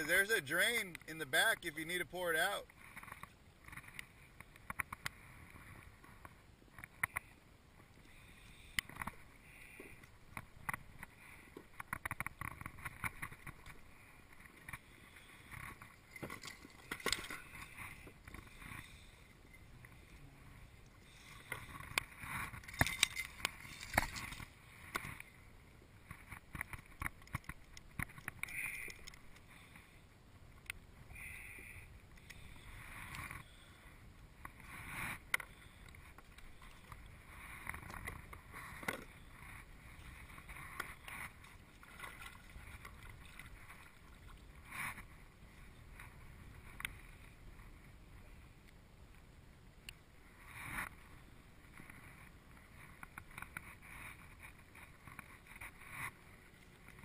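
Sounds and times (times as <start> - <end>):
small waves lapping on a hull: 0.0 - 49.3
gear clicks knocks and rustles: 21.4 - 25.2.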